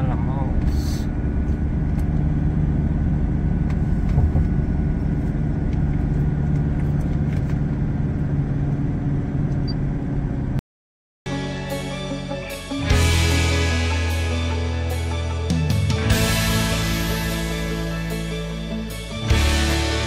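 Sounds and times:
car engine and tyre hum: 0.0s - 10.6s
music: 11.3s - 20.0s.

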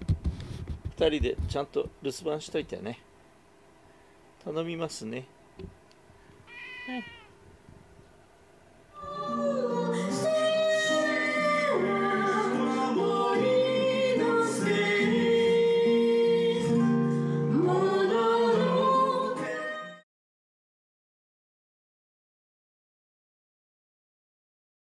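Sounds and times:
acoustic guitar: 9.0s - 20.0s
man and woman singing: 9.0s - 20.0s.

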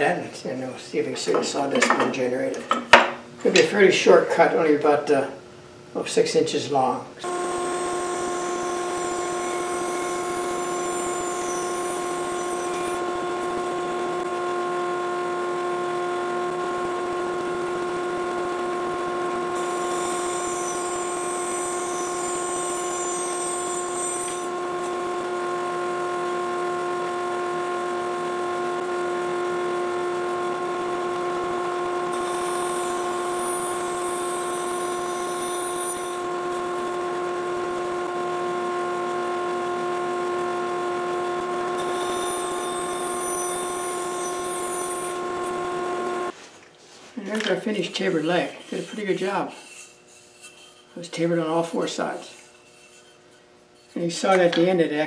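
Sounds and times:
bandsaw and dust collector hum: 7.2s - 46.4s, 47.2s - 54.8s.

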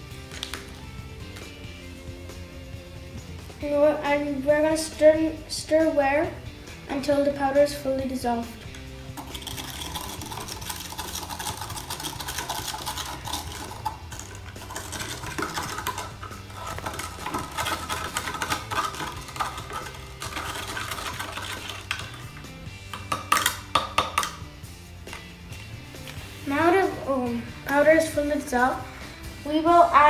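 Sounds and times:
background music: 0.0s - 30.0s
stick scraping in a test tube: 9.1s - 22.5s.

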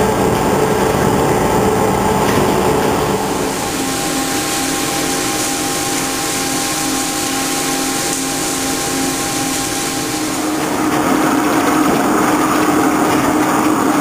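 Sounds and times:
faint steady whine: 0.0s - 13.1s
lathe cutting steel hiss: 3.2s - 10.9s.

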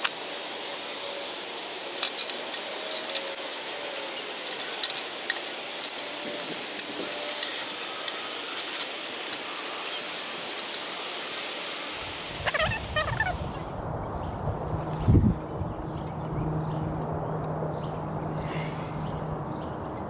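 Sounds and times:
steady hiss: 0.0s - 13.8s.

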